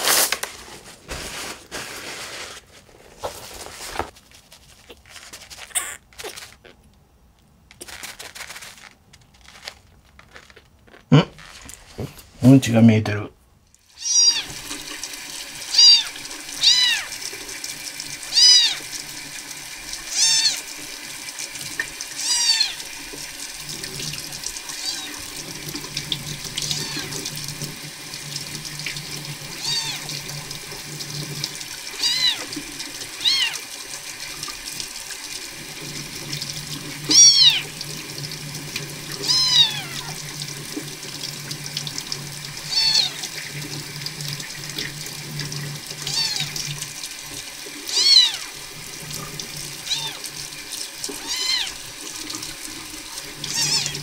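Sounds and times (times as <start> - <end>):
kitten mewing: 5.7 - 6.8, 14.0 - 14.5, 15.7 - 17.1, 18.3 - 18.8, 20.1 - 20.6, 22.2 - 22.8, 24.8 - 25.2, 26.7 - 27.2, 29.6 - 30.0, 32.0 - 32.5, 33.2 - 33.6, 37.1 - 37.7, 39.2 - 40.2, 42.7 - 43.3, 46.1 - 46.5, 47.9 - 48.5, 49.9 - 50.2, 51.2 - 51.8, 53.5 - 54.0
tap water running into sink: 14.0 - 54.0.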